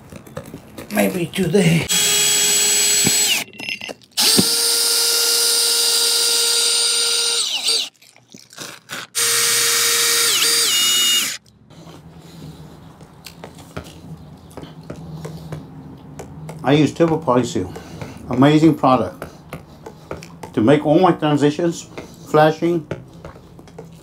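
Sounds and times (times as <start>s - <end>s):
drill trigger blips: 1.9s - 3.5s, 4.2s - 7.9s, 9.2s - 11.4s
power drill whining: 1.9s - 3.5s, 4.2s - 7.9s, 9.2s - 11.4s.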